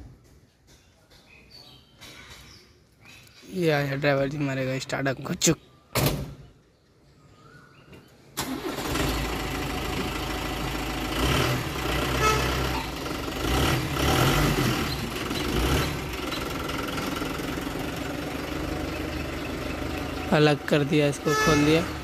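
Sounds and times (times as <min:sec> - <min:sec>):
truck engine starting and revving: 0:08.4 - 0:22.0.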